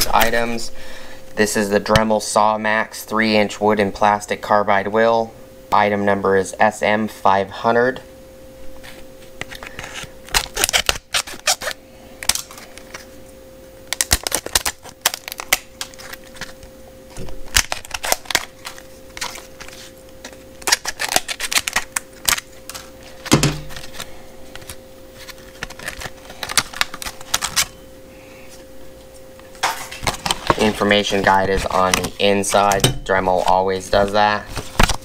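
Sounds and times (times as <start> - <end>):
faint steady hum: 0.0 - 35.0
scissors cutting plastic packaging: 9.5 - 13.1, 13.9 - 27.7.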